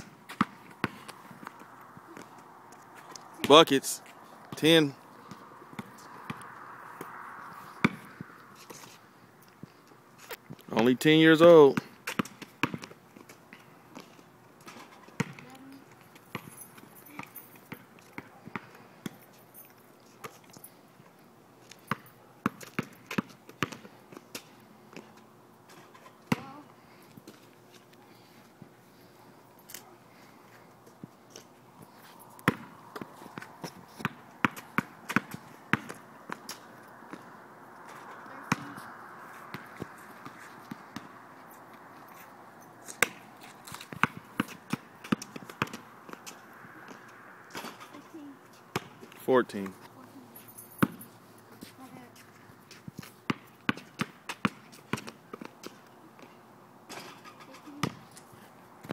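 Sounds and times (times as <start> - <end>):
basketball bouncing: 0.3 - 2.4, 5.3 - 7.2, 7.8 - 8.2, 11.8 - 13.0, 14.6 - 15.5, 16.3 - 16.6, 21.9 - 24.5, 26.3 - 26.6, 32.4 - 37.2, 38.5 - 38.8, 39.5 - 41.2, 43.8 - 47.8, 48.7 - 49.1, 50.8 - 51.0, 53.3 - 55.8, 57.8 - 58.0.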